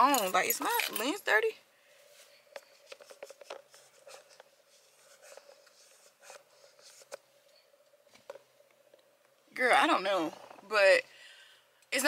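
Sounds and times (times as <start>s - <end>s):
faint steady hum: 0.0s - 12.0s
phone being handled: 2.4s - 9.0s.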